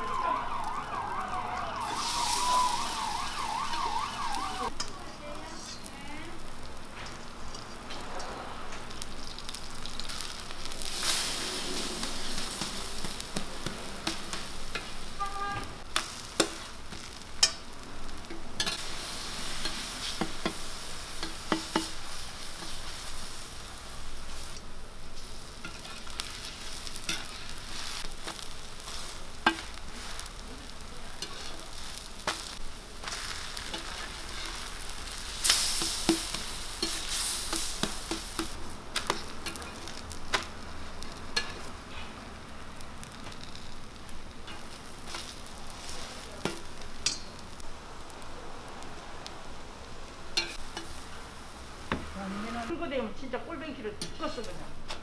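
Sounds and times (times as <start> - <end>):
pancakes sizzling in oil: 0.0 - 55.0
metal spatula scraping pan: 25.6 - 30.3, 33.0 - 40.0.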